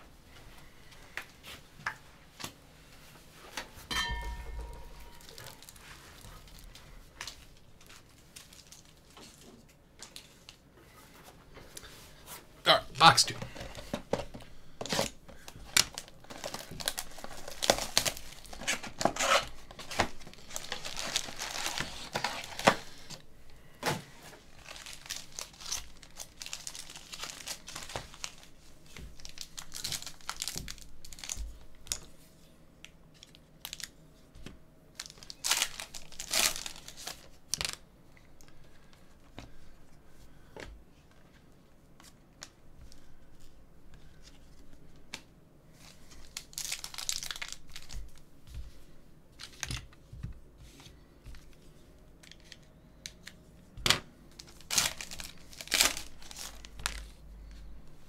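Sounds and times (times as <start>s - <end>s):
plastic wrap crinkling: 4.3s - 10.7s, 13.5s - 23.6s, 24.2s - 32.1s, 33.1s - 34.0s, 34.9s - 37.8s, 45.8s - 48.3s, 54.3s - 57.7s
foil pack tearing: 14.8s - 23.2s, 24.5s - 28.5s, 29.2s - 32.0s, 35.0s - 37.8s, 46.2s - 48.0s, 54.4s - 57.1s.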